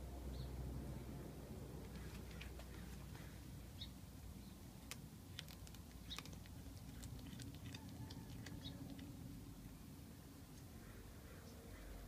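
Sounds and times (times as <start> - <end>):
cat chewing bones crunching: 4.8 - 9.4.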